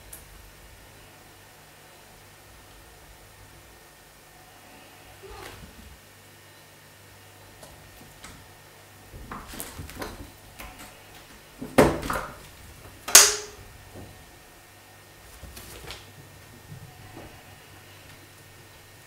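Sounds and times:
door swinging open with bumps: 9.0 - 12.6.

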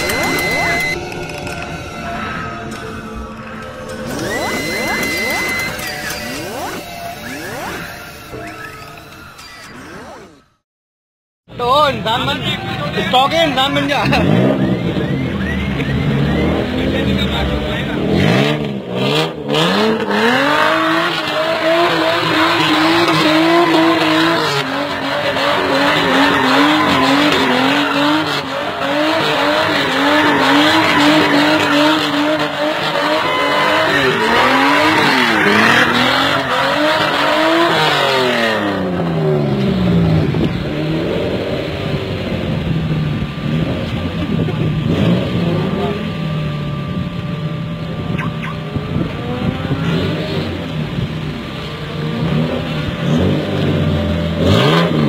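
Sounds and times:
car engine revving: 0.0 - 8.6, 11.6 - 55.0
tyres spinning and squealing: 0.0 - 10.6, 20.2 - 39.2.

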